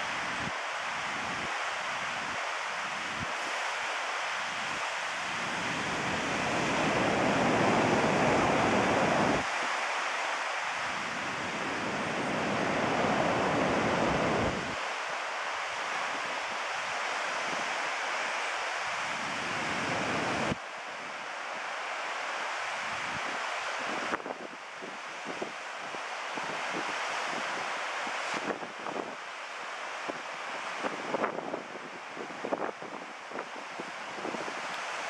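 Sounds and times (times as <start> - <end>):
ocean surf breaking: 5.5 - 16.9
wind buffeting microphone: 5.6 - 9.5, 11.2 - 14.8.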